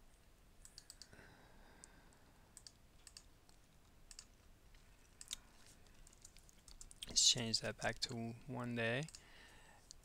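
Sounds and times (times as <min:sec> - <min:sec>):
computer mouse clicks: 0:00.6 - 0:01.2, 0:01.8 - 0:07.2, 0:08.0 - 0:10.0.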